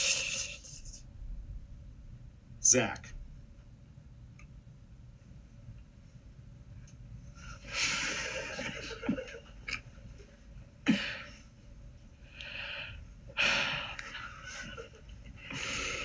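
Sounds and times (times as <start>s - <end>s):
man hissing exhalations: 0.0s - 0.8s
sniffs: 0.0s - 1.0s.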